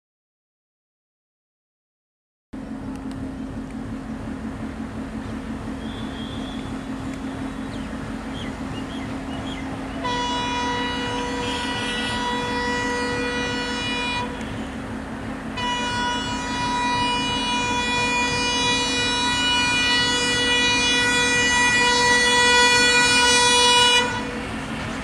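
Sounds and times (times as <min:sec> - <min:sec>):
low hum: 0:02.6 - 0:25.0
train horn blasts: 0:05.2 - 0:25.0.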